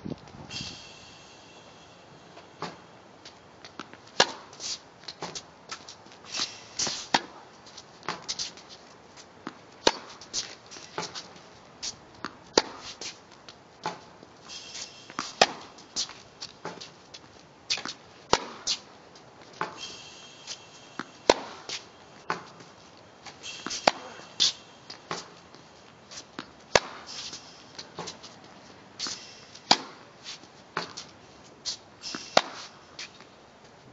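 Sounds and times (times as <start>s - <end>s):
tennis racquet striking ball: 0.7s - 5.4s, 6.3s - 7.4s, 9.5s - 11.4s, 12.2s - 13.2s, 13.8s - 17.0s, 17.7s - 18.9s, 19.6s - 28.4s, 29.0s - 31.1s, 31.7s - 33.3s
tennis ball bouncing: 2.6s - 7.4s, 8.0s - 8.6s, 9.4s - 11.5s, 12.1s - 13.2s, 13.8s - 14.1s, 14.7s - 28.4s, 29.0s - 31.1s, 31.7s - 33.3s.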